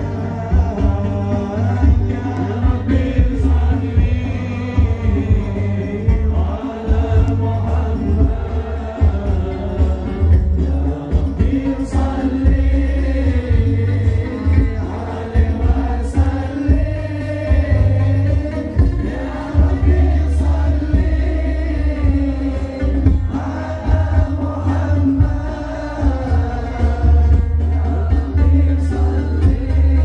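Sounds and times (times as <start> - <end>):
heavy bass drum pattern: 0.0 - 30.0
man singing into a microphone: 0.0 - 30.0.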